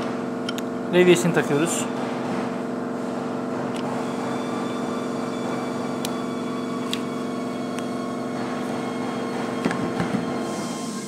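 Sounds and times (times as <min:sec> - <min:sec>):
steady machine hum: 0:00.0 - 0:11.0.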